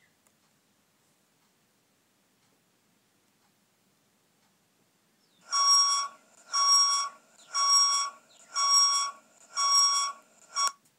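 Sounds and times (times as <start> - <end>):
electronic alarm beeping: 5.4 - 10.8.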